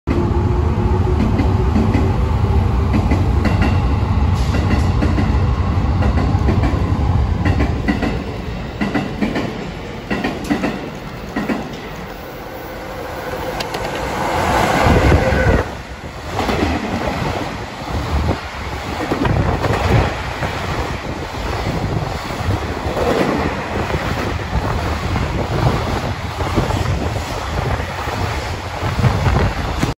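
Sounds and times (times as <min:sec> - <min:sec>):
locomotive passing: 0:00.4 - 0:29.9
train wheels clattering on rail joints: 0:04.4 - 0:05.4, 0:06.0 - 0:12.1, 0:13.6 - 0:14.6.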